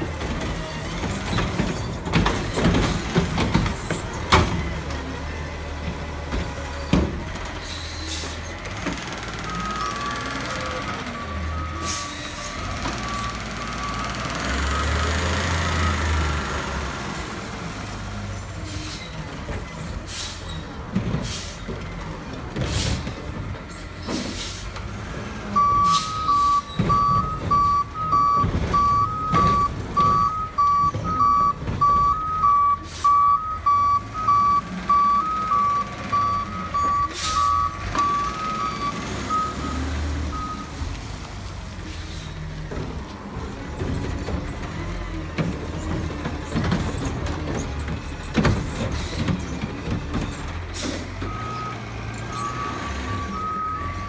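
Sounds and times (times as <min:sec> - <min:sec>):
garbage truck diesel engine: 0:00.0 - 0:54.0
air brakes hissing: 0:07.6 - 0:08.4, 0:18.6 - 0:19.2, 0:20.0 - 0:20.6, 0:21.2 - 0:21.6, 0:24.0 - 0:24.8, 0:32.8 - 0:33.2, 0:50.7 - 0:51.1
reverse alarm beeping: 0:25.6 - 0:40.7.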